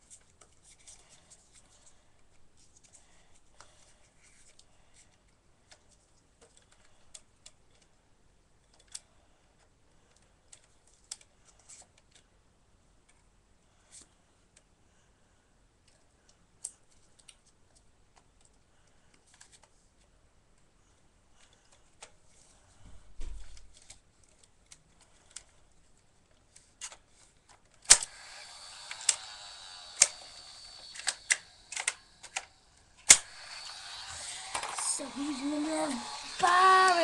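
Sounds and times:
plastic toy guns clicking and rattling: 26.3 - 37.0
loud clicks: 28.8 - 37.0.

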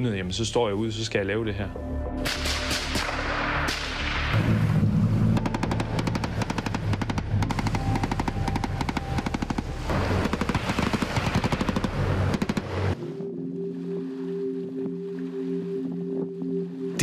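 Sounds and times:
automatic gunfire bursts: 5.4 - 12.9.

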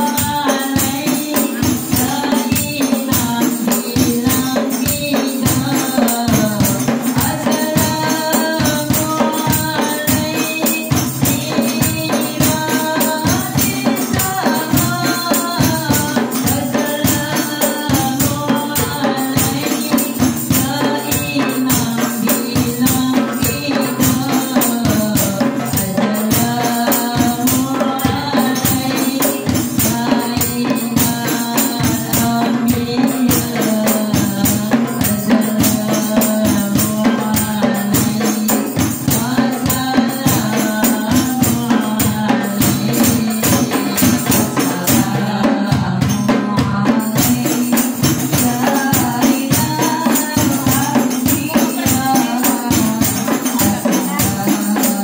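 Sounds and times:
frame drums beating: 0.0 - 55.0
large drum: 0.0 - 55.0
women singing devotional song: 0.0 - 55.0
tambourine jingling: 46.8 - 55.0.

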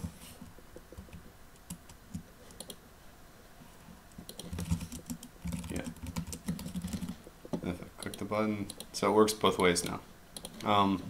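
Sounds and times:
typing on computer keyboard: 4.3 - 7.2.

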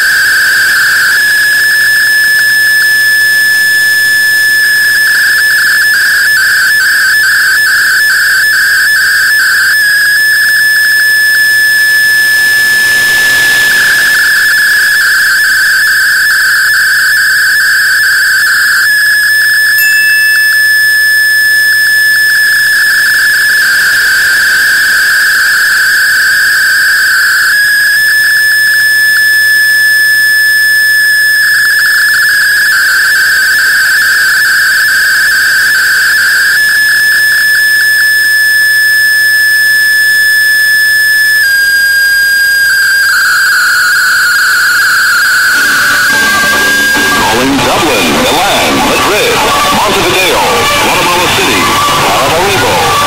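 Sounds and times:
shrill whistle-like digital tone: 0.0 - 53.0
radio hiss: 45.6 - 53.0.

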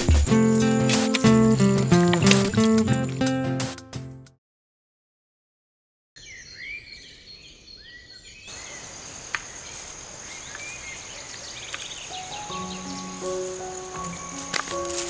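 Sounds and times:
insect trill: 0.3 - 2.3, 8.5 - 15.0
birds chirping: 0.3 - 3.2, 6.2 - 15.0
sharp click: 0.8 - 3.0.

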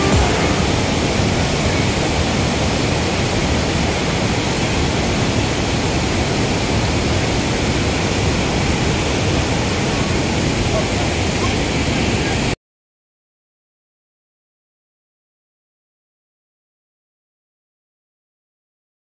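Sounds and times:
water rushing over rocks: 0.0 - 12.5.

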